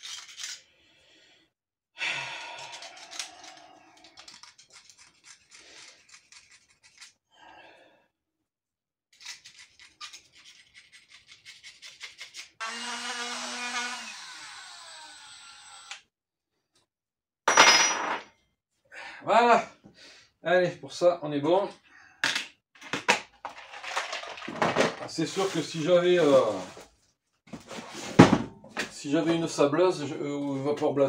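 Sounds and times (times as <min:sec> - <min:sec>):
small electric motor running: 0:12.6 - 0:16.0.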